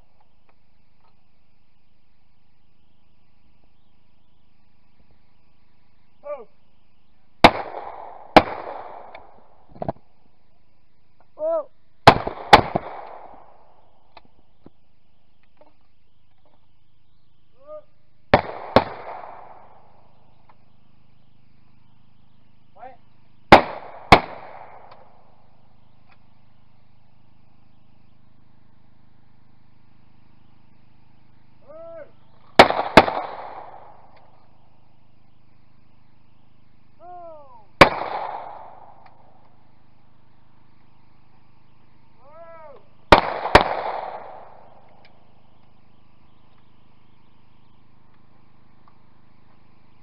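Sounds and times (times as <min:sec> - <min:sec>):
shotgun shots with echo: 0:07.4 - 0:09.5, 0:12.0 - 0:13.7, 0:18.3 - 0:20.0, 0:23.5 - 0:25.2, 0:32.6 - 0:34.4, 0:37.8 - 0:39.3, 0:43.1 - 0:44.9
short shouted call: 0:37.0 - 0:37.7, 0:42.2 - 0:42.9.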